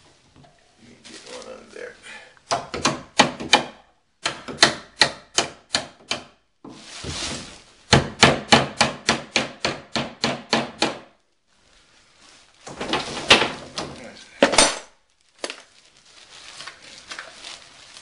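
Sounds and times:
hammer striking wood: 0:02.5 - 0:06.4, 0:07.9 - 0:11.2.

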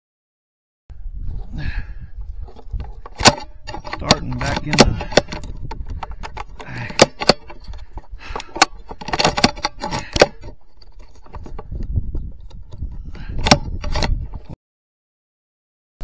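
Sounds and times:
rifle handling clicks and knocks: 0:02.5 - 0:14.6.

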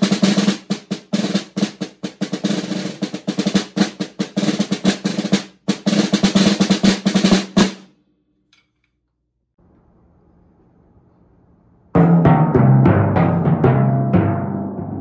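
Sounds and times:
snare drum rolls with sticks: 0:00.0 - 0:07.9.

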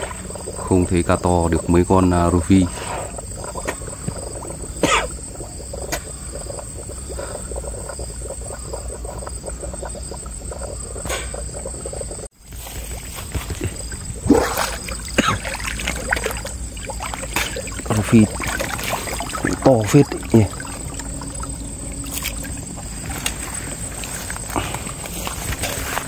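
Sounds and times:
insect trill: 0:00.0 - 0:26.0
water splashing: 0:00.0 - 0:26.0
handling noise: 0:12.4 - 0:26.0.

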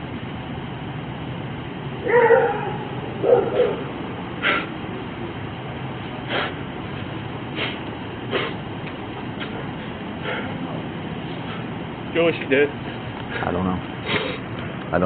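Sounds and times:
low background hum: 0:00.0 - 0:15.0
dog barking: 0:02.0 - 0:03.9.

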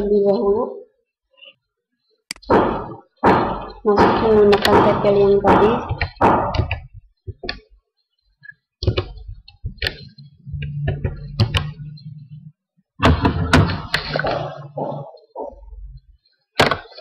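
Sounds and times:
keyboard keys typing: 0:08.8 - 0:12.0
low steady hum: 0:08.9 - 0:16.3.

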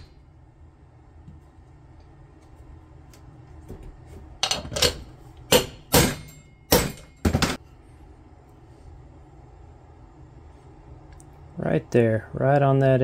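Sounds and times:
hammer tapping metal: 0:05.5 - 0:07.6.

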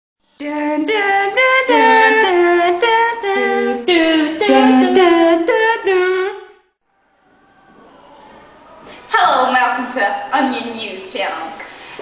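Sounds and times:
voices singing a cappella: 0:00.3 - 0:06.7.

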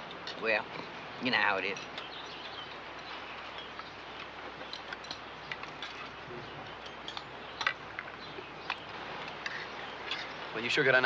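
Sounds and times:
low background noise: 0:00.0 - 0:11.0
cutlery and dishes clinking: 0:04.7 - 0:10.4.

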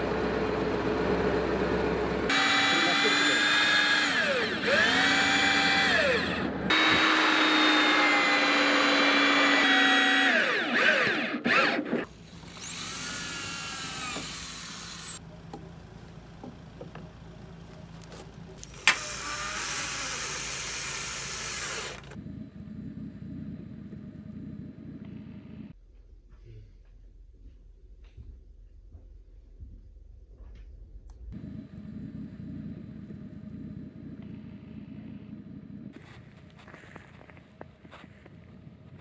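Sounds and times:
electric drill boring into wood: 0:02.3 - 0:15.2, 0:18.6 - 0:22.2
power tool high whine: 0:02.3 - 0:15.2, 0:18.6 - 0:22.2.

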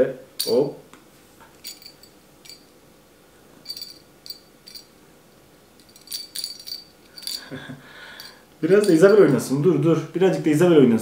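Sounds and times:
small bell jingling: 0:01.6 - 0:02.7, 0:03.6 - 0:05.0, 0:05.8 - 0:09.6.

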